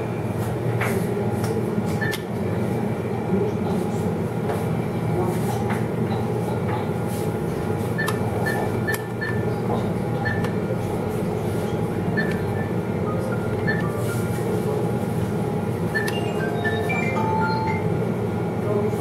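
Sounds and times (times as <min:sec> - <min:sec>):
keypad beeps: 0:02.0 - 0:02.3, 0:07.9 - 0:09.5, 0:10.1 - 0:10.7, 0:11.7 - 0:14.2, 0:15.9 - 0:17.9.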